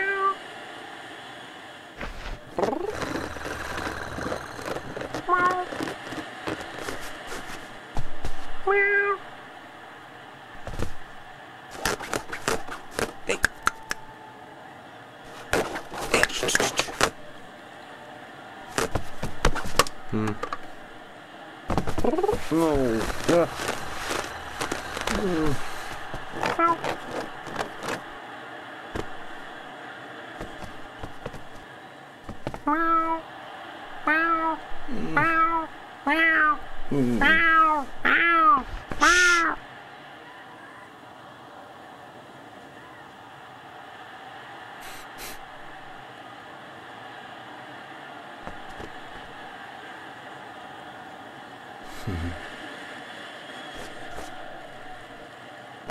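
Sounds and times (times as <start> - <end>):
person imitating cat meows: 0.0 - 0.4, 5.1 - 5.8, 8.6 - 9.2, 26.4 - 27.0, 32.6 - 33.2, 34.1 - 39.6
cat claws scratching fabric: 2.0 - 7.7, 11.7 - 13.3, 15.3 - 17.2, 18.7 - 19.9, 21.7 - 28.2, 30.4 - 31.6, 32.3 - 32.8.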